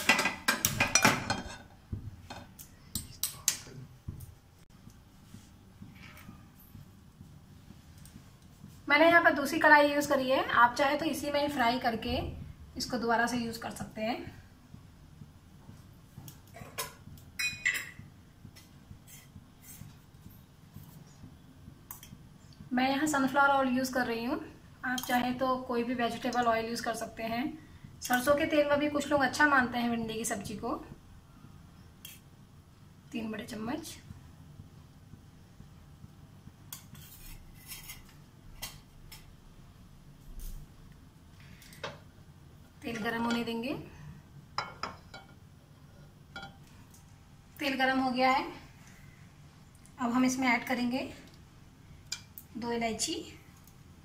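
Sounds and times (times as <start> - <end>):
spoon clinking against a pan: 17.4 - 18.0.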